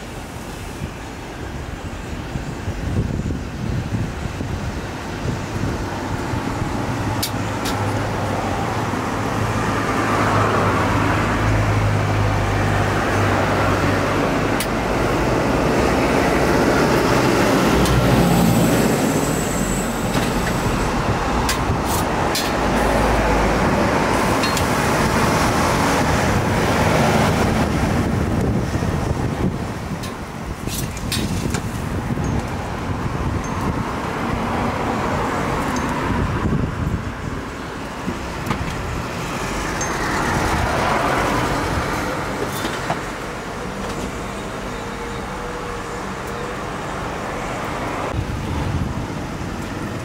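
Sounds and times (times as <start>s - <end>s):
mechanical rushing noise: 14.2s - 32.2s.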